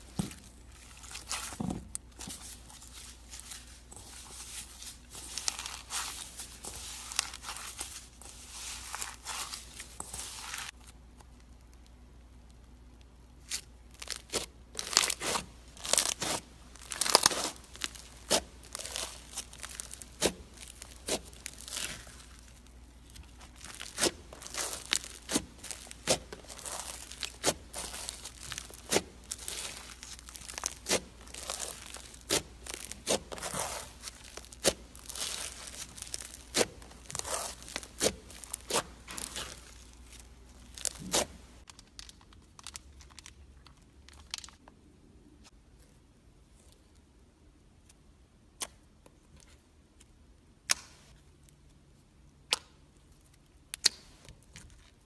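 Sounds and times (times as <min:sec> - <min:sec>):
slime crunching and popping: 0:00.0 - 0:10.8, 0:13.4 - 0:44.6.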